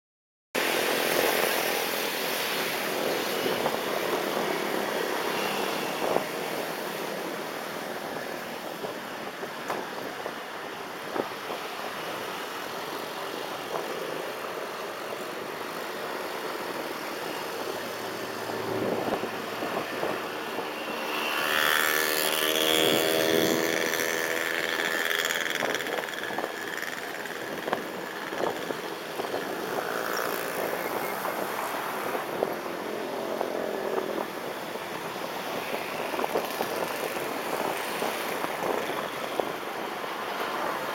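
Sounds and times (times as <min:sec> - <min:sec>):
road and traffic noise: 0:00.6 - 0:40.9
loud vehicle engine passing: 0:17.9 - 0:25.7.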